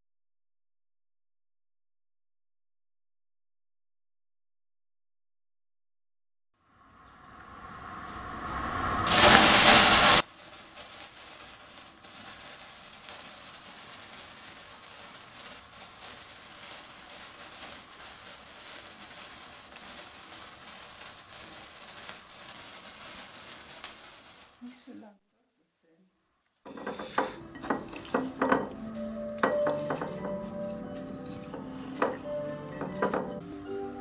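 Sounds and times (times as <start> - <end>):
sparkler crackling fizz: 6.6 - 25.2, 26.7 - 34.0
loud rushing hiss: 6.7 - 24.9, 26.7 - 34.0.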